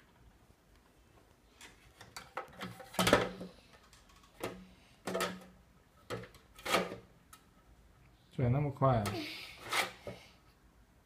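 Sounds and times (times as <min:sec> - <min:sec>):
plastic knocks and clatters: 0:01.6 - 0:07.4.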